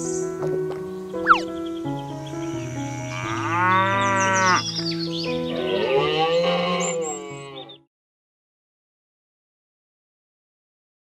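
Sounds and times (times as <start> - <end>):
background music: 0.0 - 7.8
cow mooing: 2.4 - 4.6, 5.5 - 7.8.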